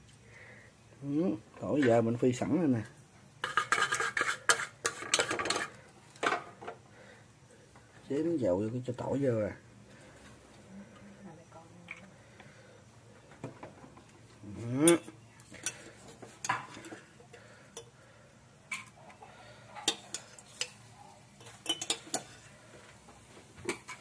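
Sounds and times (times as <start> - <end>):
metal ladle scraping pot: 3.4 - 5.8.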